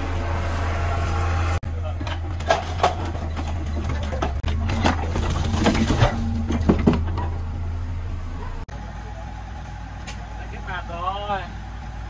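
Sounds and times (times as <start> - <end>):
diesel engine humming: 0.0 - 12.0
rubble clattering into truck bed: 1.7 - 7.6.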